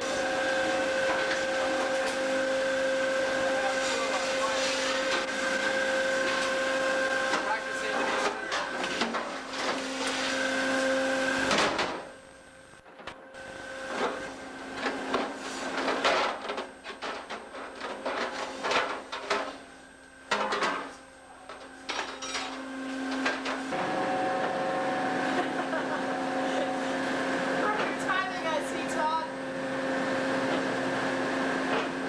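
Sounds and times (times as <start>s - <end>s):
machinery humming: 0.0s - 32.0s
metal pans clanking: 21.8s - 22.7s.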